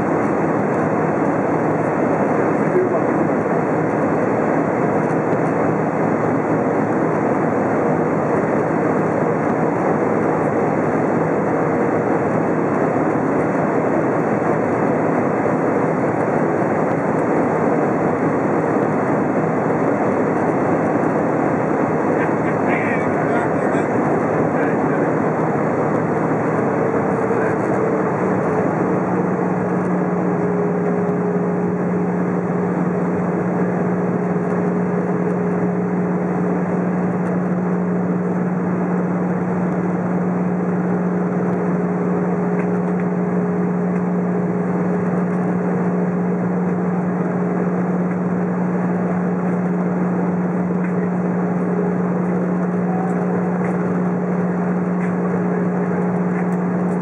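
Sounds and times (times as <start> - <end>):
jet engines droning: 0.0 - 57.0
faint high tone: 52.8 - 53.3.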